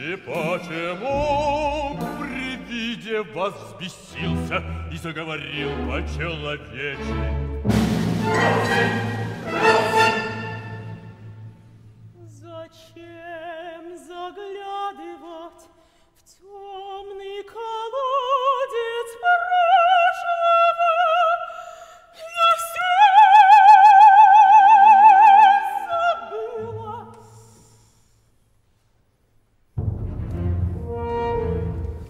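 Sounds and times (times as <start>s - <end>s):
low orchestral notes: 0.3s - 12.2s, 29.8s - 32.0s
woman singing opera: 16.4s - 27.6s.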